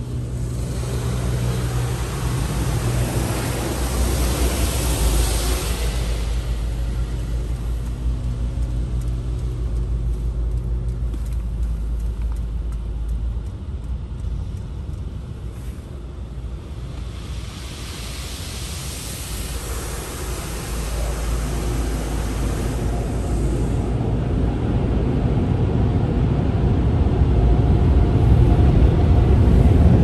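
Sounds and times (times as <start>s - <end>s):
water spray hissing on car: 0.0s - 9.1s, 15.5s - 24.4s
car wash machine rumble: 0.0s - 30.0s.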